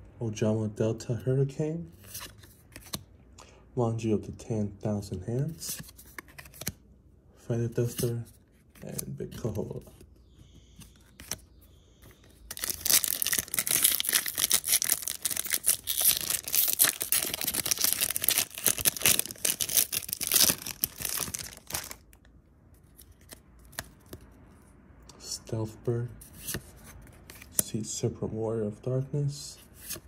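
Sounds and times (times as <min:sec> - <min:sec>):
foil wrapper tearing and crinkling: 0:12.5 - 0:22.0.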